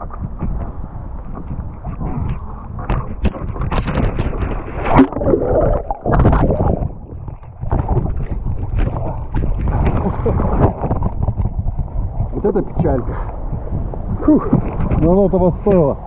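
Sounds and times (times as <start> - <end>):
water churning and bubbling underwater: 0.0 - 16.0
loud splash: 4.7 - 7.0.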